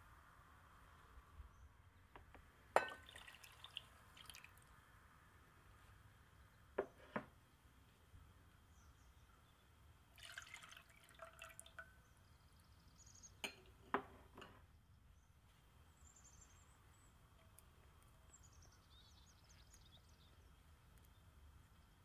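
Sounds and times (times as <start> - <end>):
liquid pouring into saucepan: 2.8 - 4.6, 10.1 - 11.9.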